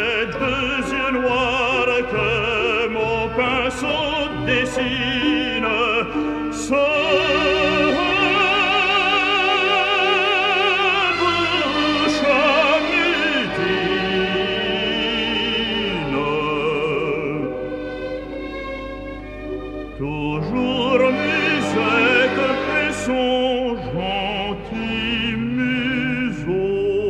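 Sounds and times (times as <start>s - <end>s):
operatic voice singing: 0.0s - 17.6s, 20.0s - 27.0s
musical accompaniment: 0.0s - 27.0s.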